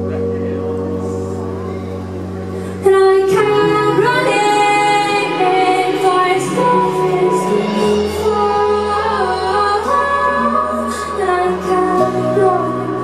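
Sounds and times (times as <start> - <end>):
sustained backing chords: 0.0 - 13.0
woman singing: 2.6 - 13.0.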